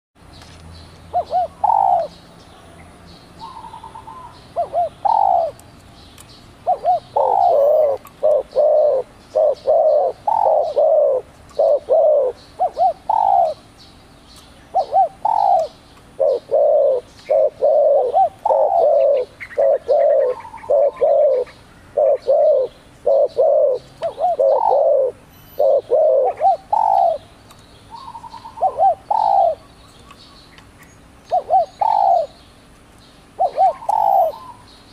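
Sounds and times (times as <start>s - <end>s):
dove cooing: 1.1s - 2.2s, 3.4s - 5.6s, 6.6s - 13.6s, 14.7s - 27.3s, 27.9s - 29.7s, 31.3s - 32.4s, 33.3s - 34.6s.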